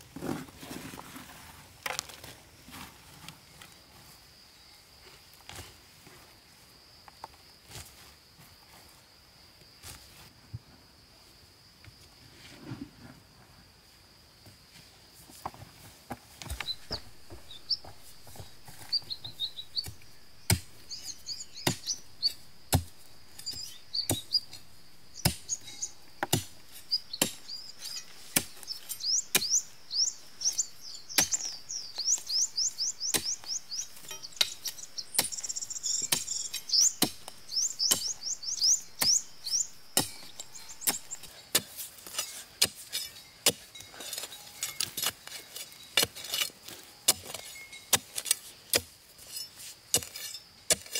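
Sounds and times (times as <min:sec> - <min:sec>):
bird chirping: 0:16.5 - 0:41.3.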